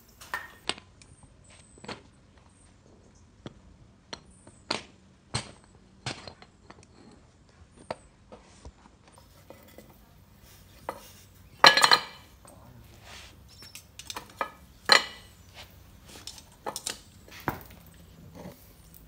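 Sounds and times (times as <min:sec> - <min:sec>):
metal clattering: 0:10.8 - 0:12.6, 0:13.6 - 0:19.0
metal tongs clinking on mould: 0:10.8 - 0:12.9, 0:13.5 - 0:15.5.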